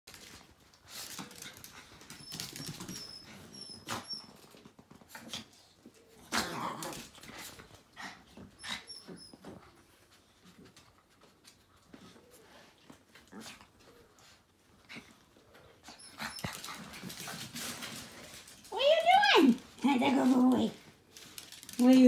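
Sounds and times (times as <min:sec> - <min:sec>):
dogs scuffling: 0:00.1 - 0:08.6, 0:09.3 - 0:22.0
small dogs growling and whining: 0:05.1 - 0:09.7, 0:11.9 - 0:17.1.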